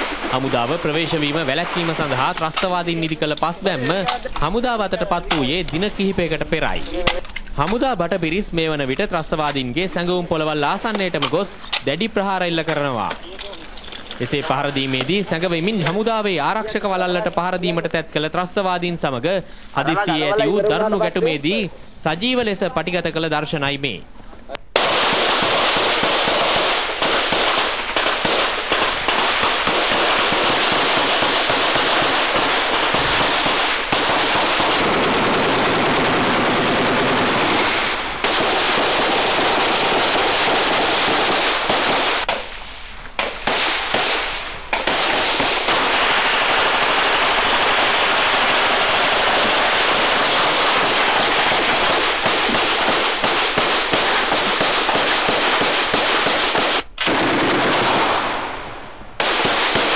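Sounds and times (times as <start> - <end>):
automatic gunfire: 24.8 - 42.3, 43.4 - 58.5, 59.2 - 59.9.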